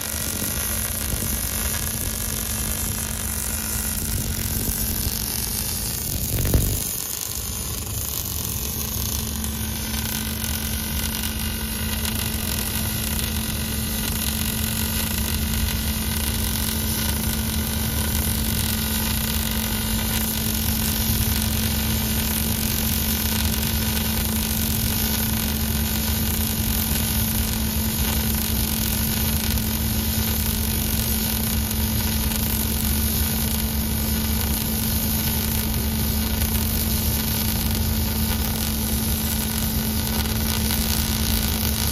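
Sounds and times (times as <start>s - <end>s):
low hum: 0.0s - 14.4s
welding arc hissing: 0.0s - 41.9s.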